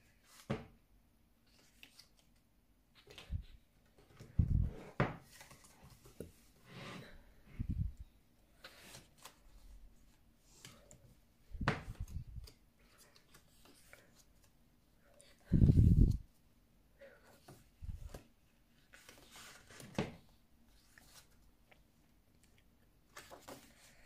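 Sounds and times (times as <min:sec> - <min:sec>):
photobook pages turning: 0:01.5 - 0:02.4, 0:23.1 - 0:24.0.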